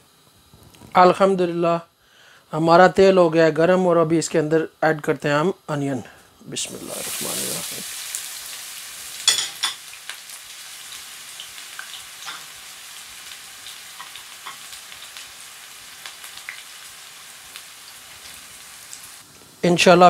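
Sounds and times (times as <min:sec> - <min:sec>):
onions sizzling in oil: 0:05.7 - 0:19.7.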